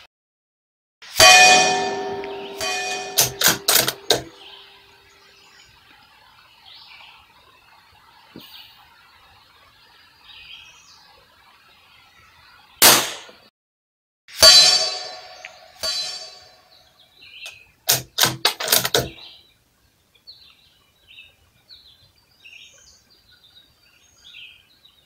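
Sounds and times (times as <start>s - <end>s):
metallic clang ringing: 1.1s - 5.0s, 14.4s - 16.8s
rifle shot: 3.2s - 4.3s, 12.8s - 13.4s
faint bird chirps: 4.4s - 12.8s.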